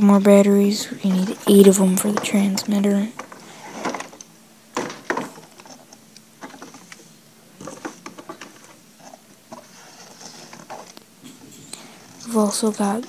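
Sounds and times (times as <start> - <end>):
packaging clicks and rustles: 1.1 - 11.0.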